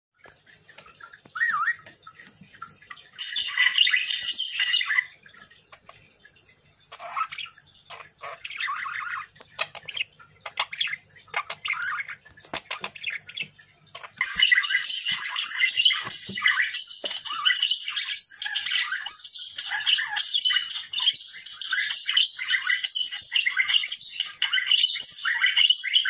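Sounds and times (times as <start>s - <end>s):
budgerigar warbling and squawking: 1.3s - 1.9s, 6.9s - 26.0s.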